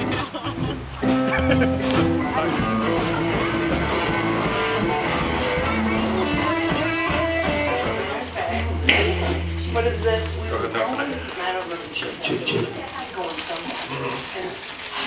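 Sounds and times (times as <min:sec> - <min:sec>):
blues guitar: 0:00.0 - 0:12.7
bass line: 0:01.1 - 0:11.4.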